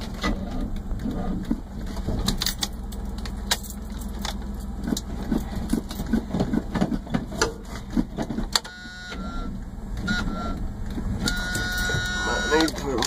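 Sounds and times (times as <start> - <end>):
engine humming: 0.0 - 13.0
dashboard warning buzzer: 8.6 - 10.6, 11.2 - 13.0.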